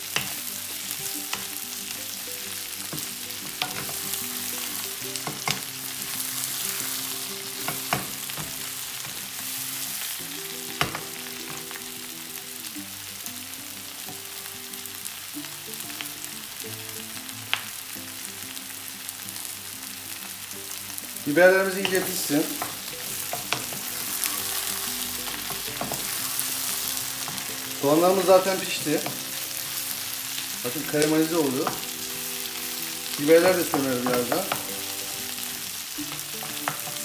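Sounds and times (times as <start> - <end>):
vegetables sizzling in a wok: 0.0 - 37.0
wooden spoon knocking on pan: 7.6 - 8.6, 25.3 - 26.2, 33.6 - 34.8.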